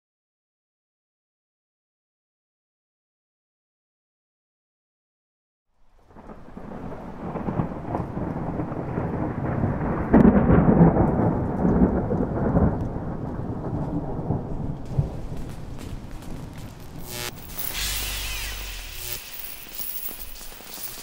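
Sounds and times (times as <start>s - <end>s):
rolling thunder: 6.0s - 17.4s.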